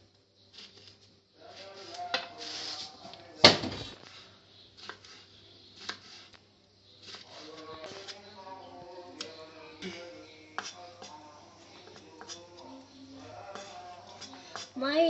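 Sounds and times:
knife slicing lemons: 4.8 - 6.3.

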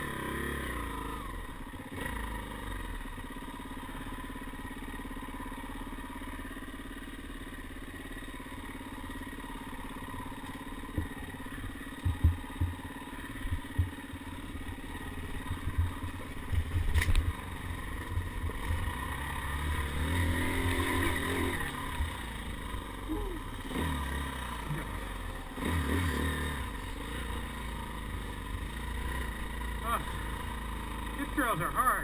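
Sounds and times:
dirt bike engine revving: 0.0 - 32.0
bike knocking and rattling: 6.4 - 18.8.

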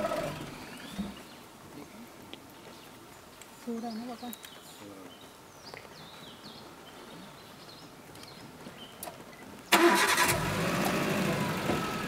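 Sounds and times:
vehicle engine starting and idling: 0.0 - 0.9, 9.7 - 12.0.

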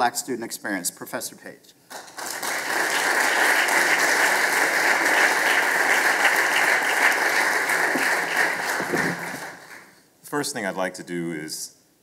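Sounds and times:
audience applauding: 1.9 - 10.0.

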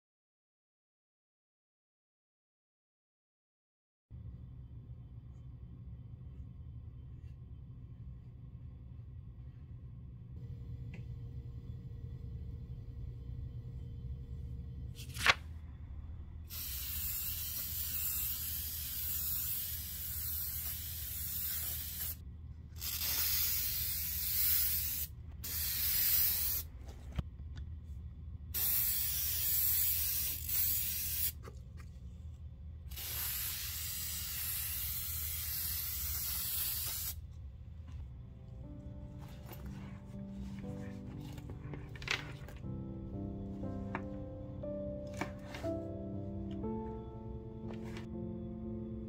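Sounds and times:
sprayer hissing: 16.5 - 22.2, 22.8 - 26.7, 32.9 - 37.2.

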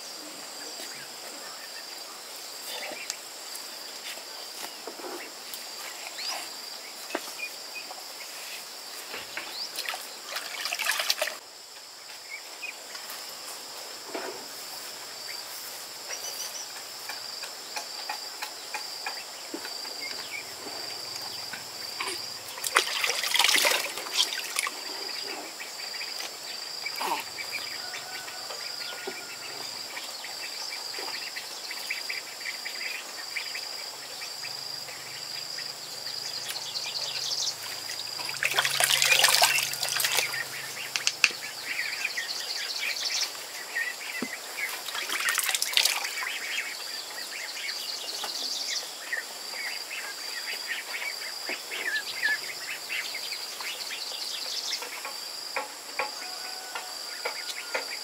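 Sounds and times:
insects chirping: 0.0 - 58.0
water splashing in plastic basin: 9.8 - 11.4, 22.5 - 24.8, 37.7 - 41.3, 44.8 - 46.3.

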